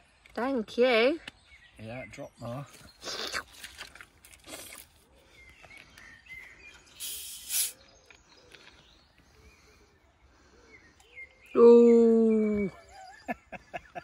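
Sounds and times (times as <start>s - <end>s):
loud hiss-like rustle: 7.0s - 7.8s.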